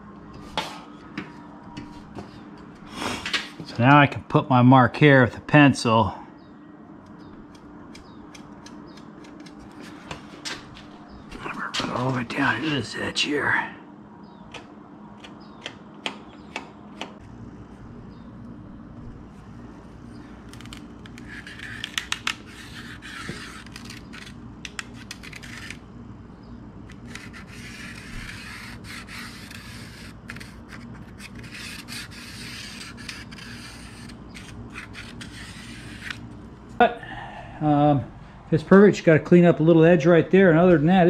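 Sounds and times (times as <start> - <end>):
steady low hum: 0.0 - 41.0
pencil scratching along metal rule: 20.6 - 25.8, 26.9 - 36.2.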